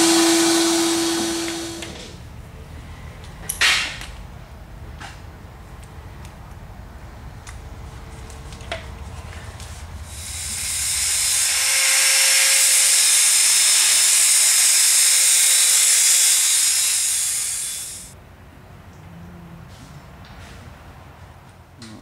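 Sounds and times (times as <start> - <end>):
angle grinder grinding steel: 10.1 - 18.2.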